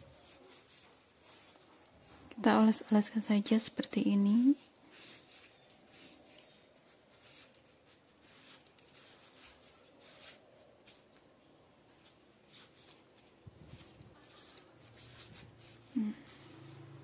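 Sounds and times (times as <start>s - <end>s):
cotton pad rubbing leaves: 12.0s - 17.0s.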